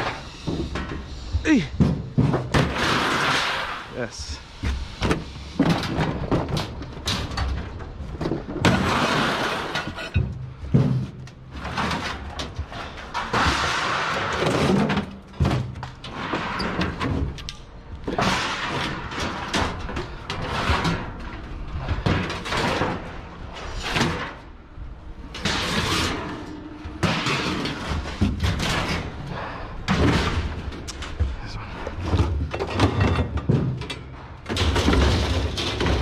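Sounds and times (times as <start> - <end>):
clanks and knocks on steel cage: 5.0 - 24.4, 32.0 - 36.0.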